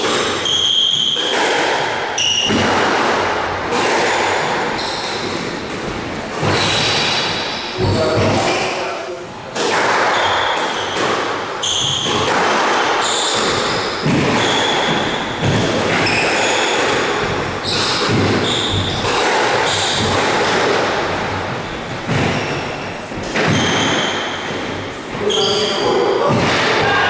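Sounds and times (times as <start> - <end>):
shoes squeaking on wooden floor: 17.3 - 20.1, 21.6 - 26.0.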